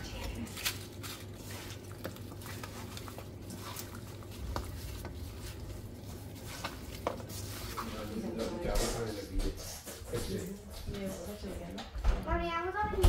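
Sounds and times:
wet squelches of raw chicken: 0.4s - 7.9s.

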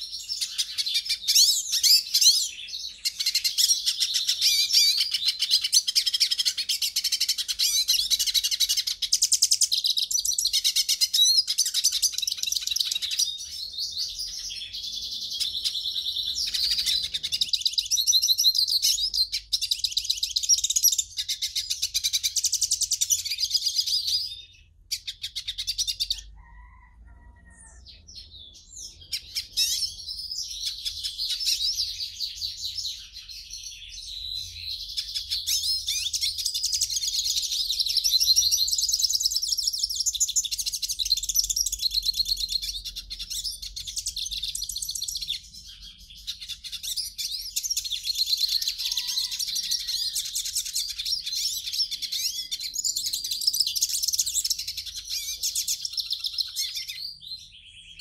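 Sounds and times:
goldfinch twittering song: 0.0s - 26.8s.

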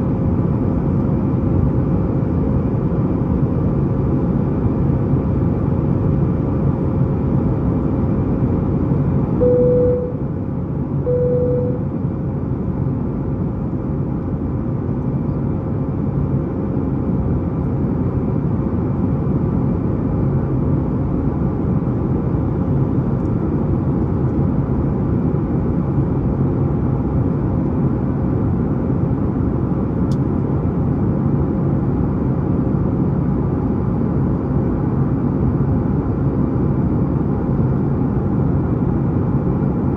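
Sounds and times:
airplane cabin drone: 0.0s - 39.9s
short cabin chimes: 9.4s - 10.2s, 11.1s - 11.8s.

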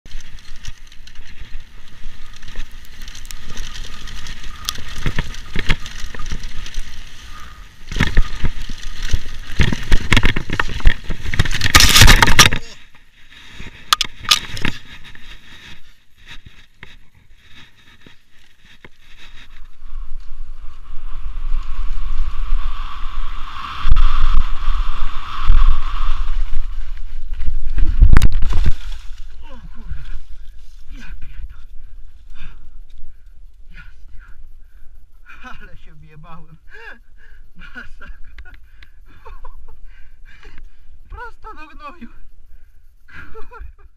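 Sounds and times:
bike rattling and clicking: 0.1s - 22.0s
bike tyres rolling on dirt: 0.1s - 43.9s.

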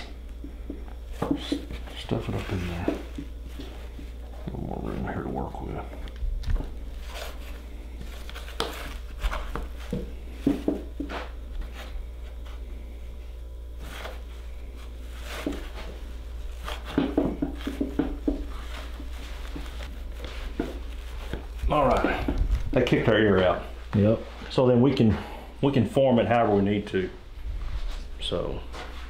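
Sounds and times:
hands rustling and tapping hide: 0.0s - 4.6s, 6.4s - 12.6s, 13.8s - 24.5s.

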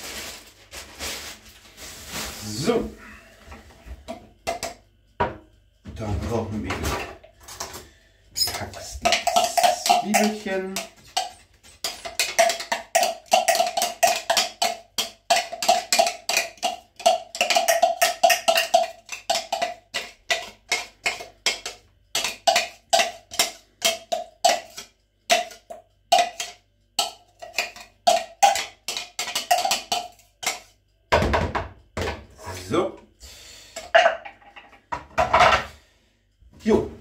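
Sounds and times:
metal spoon clacking plastic container: 8.4s - 30.7s.

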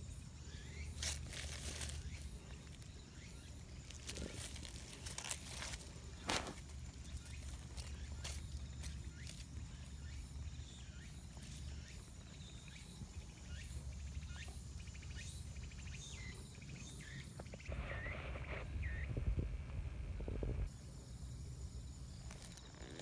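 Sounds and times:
rustling near microphone: 1.0s - 3.0s, 3.6s - 9.6s.

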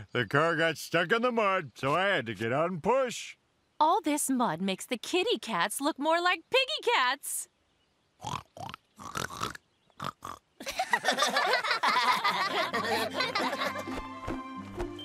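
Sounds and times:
cartoon pig oinks: 8.2s - 10.4s
group laughing: 10.6s - 14.1s
music: 12.7s - 15.0s.

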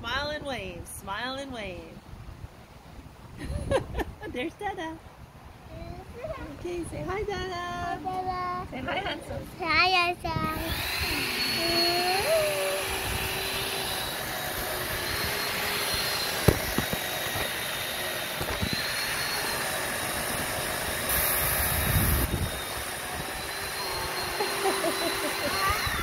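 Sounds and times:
electric chainsaw whining: 10.4s - 26.0s.

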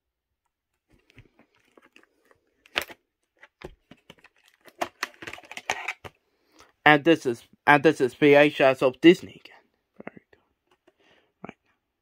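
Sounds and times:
plastic case clicking and crackling: 0.9s - 6.2s.

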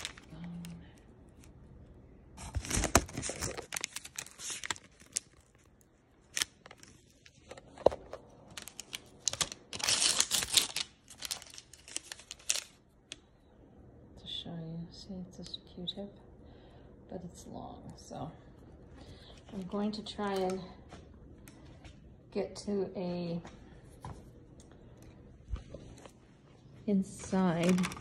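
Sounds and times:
paper wrapper tearing and crinkling: 0.0s - 0.7s, 2.4s - 12.8s, 27.5s - 28.0s
paper crackles: 0.0s - 1.6s, 2.4s - 12.8s, 27.1s - 28.0s.

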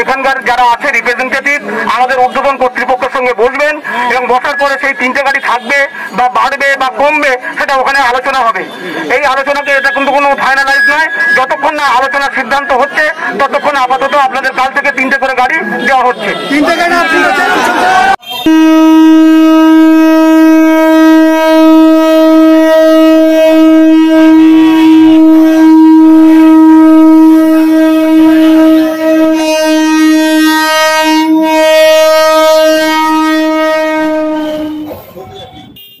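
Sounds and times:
train horn blast: 18.3s - 35.1s.

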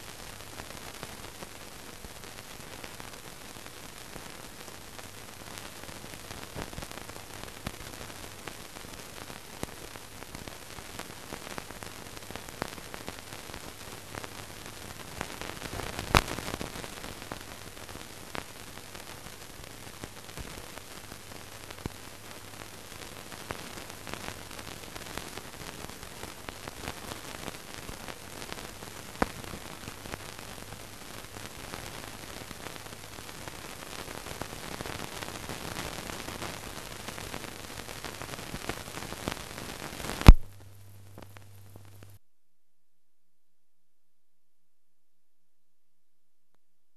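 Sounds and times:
film soundtrack hiss and crackle: 0.0s - 42.2s
faint hum: 36.5s - 42.2s.

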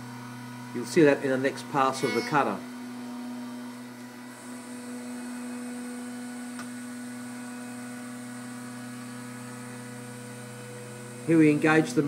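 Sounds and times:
milling machine spindle hum: 1.6s - 12.0s
faint high tone: 2.0s - 2.6s.

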